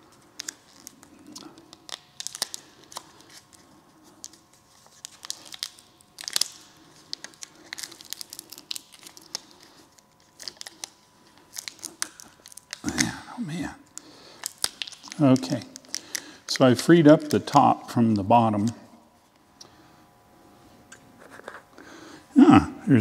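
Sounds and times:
plastic film crinkling and tearing: 0.0s - 17.6s.

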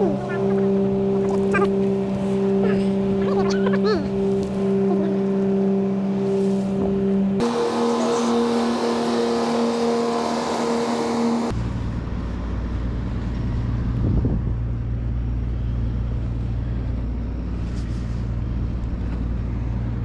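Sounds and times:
high-pitched engine drone: 0.0s - 13.9s
low engine rumble: 0.0s - 20.0s.

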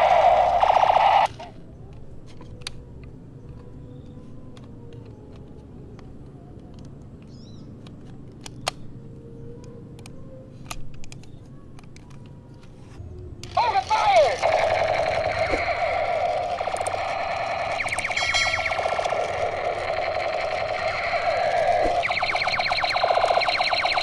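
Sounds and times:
toy gun electronic firing rattle: 0.0s - 1.6s, 13.4s - 24.0s.

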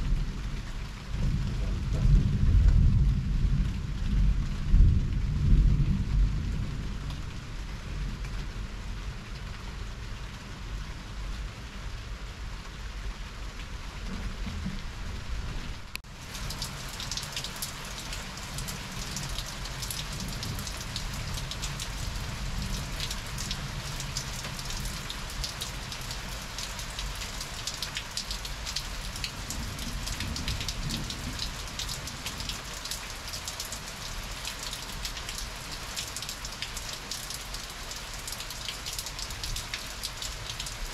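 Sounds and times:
thunder rumbling: 0.0s - 8.5s, 29.2s - 32.5s
heavy rain falling: 0.0s - 40.9s
raindrops pattering: 0.0s - 40.9s.

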